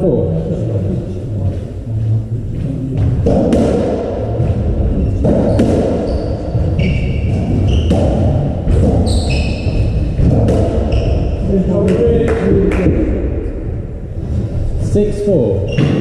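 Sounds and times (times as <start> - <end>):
ball hitting walls with echoing thuds: 2.5 - 14.9, 15.6 - 16.0
shoes squeaking on wooden floor: 4.5 - 11.6, 15.6 - 16.0.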